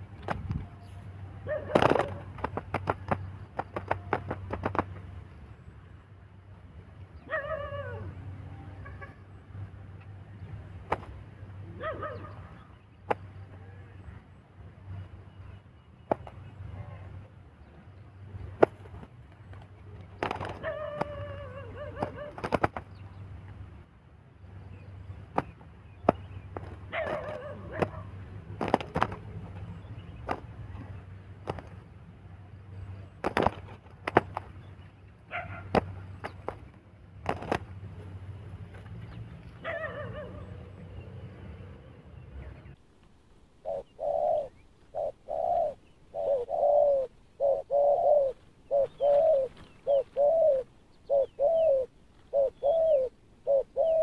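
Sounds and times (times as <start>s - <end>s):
bird wings flapping against grass: 0.1s - 1.0s, 1.6s - 5.2s, 10.8s - 11.2s, 16.1s - 16.5s, 18.4s - 23.1s, 25.2s - 29.6s, 30.2s - 31.8s, 33.2s - 34.8s, 35.6s - 39.0s
short bird calls: 43.6s - 54.0s.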